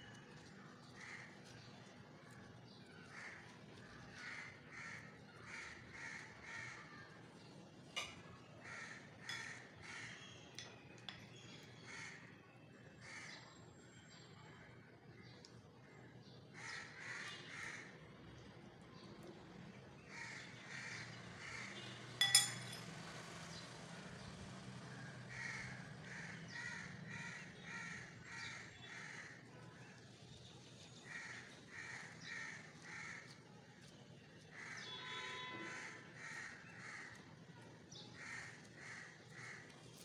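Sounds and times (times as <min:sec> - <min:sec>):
crows cawing: 0:01.0 - 0:01.5, 0:03.0 - 0:07.2, 0:08.0 - 0:10.2, 0:11.8 - 0:12.3, 0:13.0 - 0:13.4, 0:16.5 - 0:18.0, 0:20.1 - 0:21.8, 0:25.0 - 0:29.4, 0:31.0 - 0:33.4, 0:34.5 - 0:40.0
sharp clink: 0:22.2 - 0:22.9.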